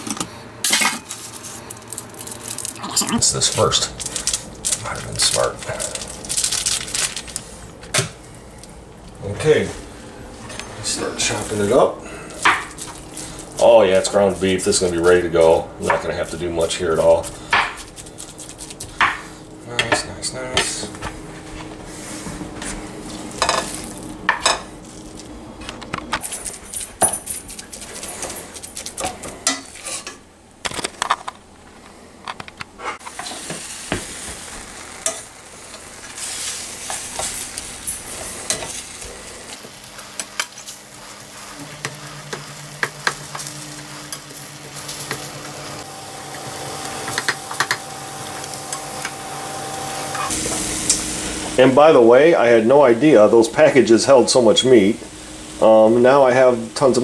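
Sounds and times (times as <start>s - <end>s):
meat sizzling in a skillet: 33.0s - 52.4s
low steady hum: 34.6s - 57.0s.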